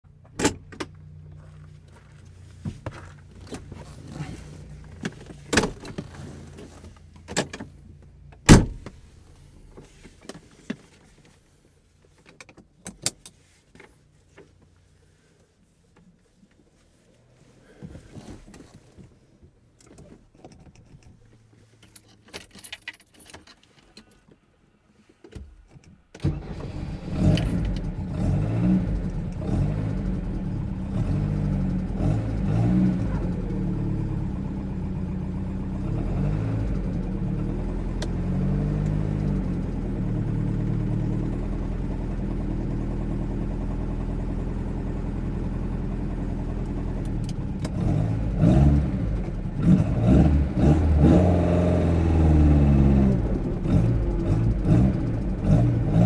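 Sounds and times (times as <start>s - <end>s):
car engine starting and running: 0.0s - 10.5s, 25.4s - 56.0s
clicks and knocks in car cabin: 4.8s - 9.0s
loud thump: 8.5s - 9.0s
keys jangling: 21.8s - 24.1s.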